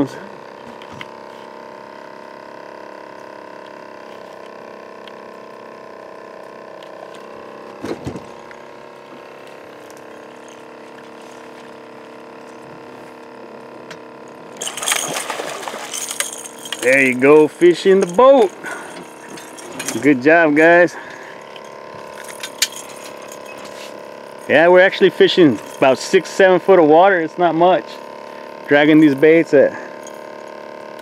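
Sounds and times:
small electric motor humming: 0.0s - 31.0s
net splashing into water: 14.6s - 16.3s
water sounds: 14.6s - 17.2s.

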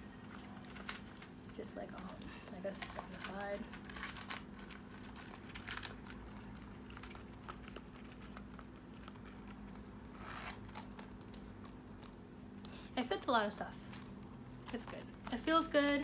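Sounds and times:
coin pouch rustling: 0.2s - 11.3s
zipper hiss: 10.1s - 10.8s.

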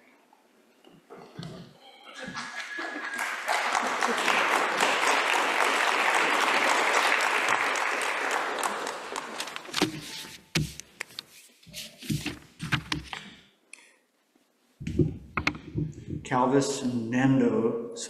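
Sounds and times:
audience applauding: 2.2s - 10.2s
clicks and knocks: 14.8s - 16.2s.

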